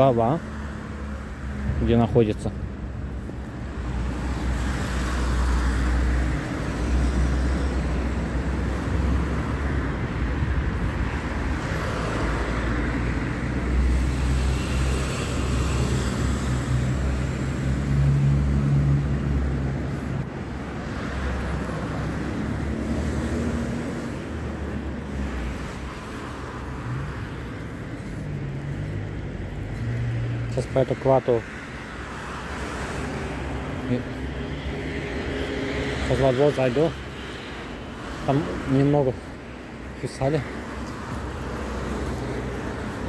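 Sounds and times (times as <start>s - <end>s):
cars passing by: 0.0s - 43.0s
engine hum: 4.3s - 30.9s.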